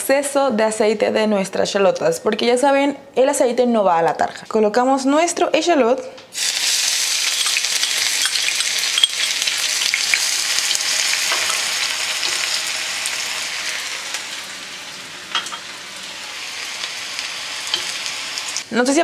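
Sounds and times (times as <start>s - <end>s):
shallots sizzling in hot oil: 6.4s - 18.7s.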